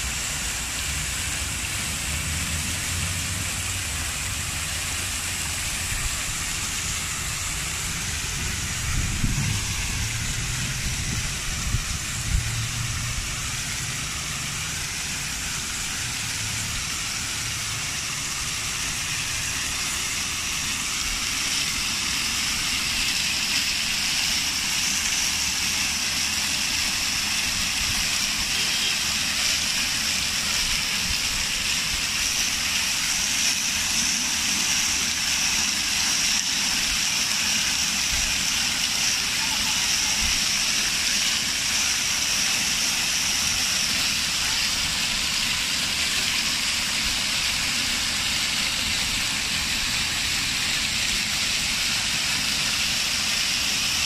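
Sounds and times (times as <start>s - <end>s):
fountain water splashing: 0.0s - 54.0s.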